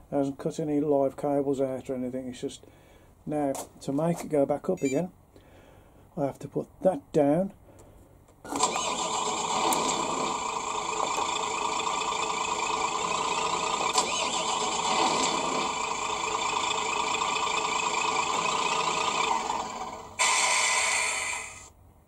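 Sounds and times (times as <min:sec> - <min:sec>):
diesel truck engine through small speaker: 0:08.6 - 0:21.7
loud hiss: 0:19.4 - 0:21.7.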